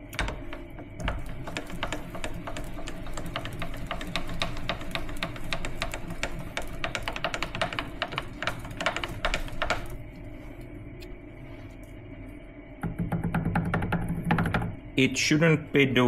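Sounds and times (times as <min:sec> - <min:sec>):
rotary table rattling tick: 0:00.0 - 0:10.0
milling machine hum: 0:00.0 - 0:15.1.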